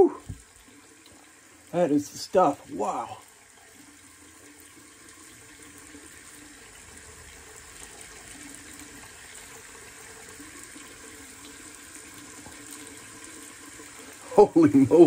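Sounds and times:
tap water running into a sink: 0.0 - 15.0.

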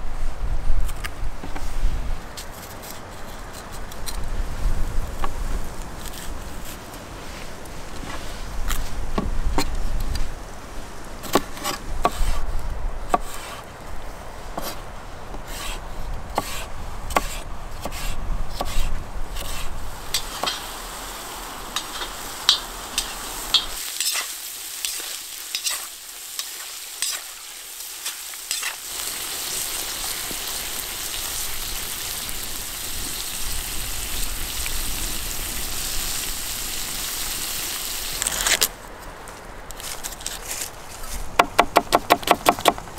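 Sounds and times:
utensil scraping against pot: 16.4 - 20.7, 21.8 - 27.3
meat frying sizzle: 19.8 - 38.6.

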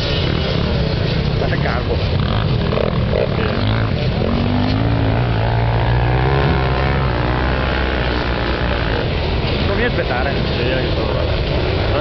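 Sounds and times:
motorcycle engines revving: 0.0 - 12.0.

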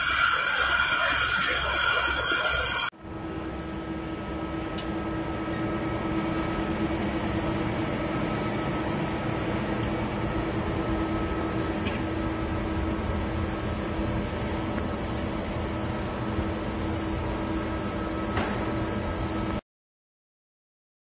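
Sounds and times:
lathe machine hum and whine: 0.0 - 19.6.

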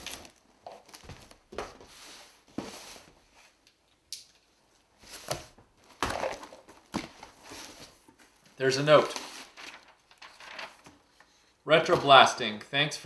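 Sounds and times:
cardboard boxes knocking and scraping: 5.1 - 8.2.

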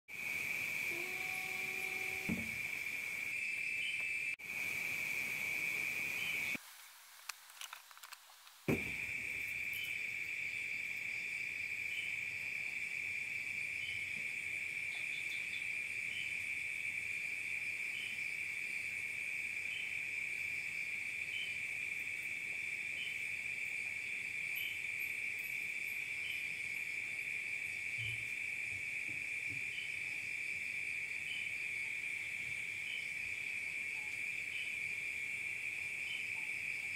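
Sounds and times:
insect chirping: 0.1 - 6.6, 8.7 - 36.9
insect trilling: 0.1 - 6.6.

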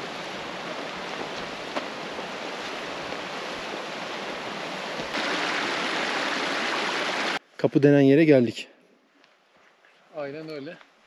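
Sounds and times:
running water rushing: 0.0 - 7.4.

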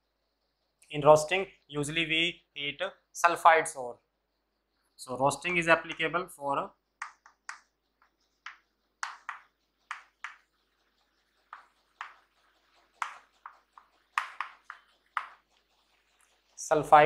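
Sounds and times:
chalk writing on a chalkboard: 7.0 - 17.0.

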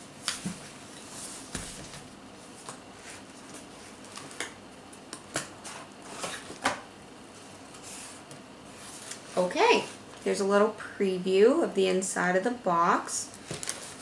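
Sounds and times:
cardboard rustling and scraping: 5.6 - 6.7.

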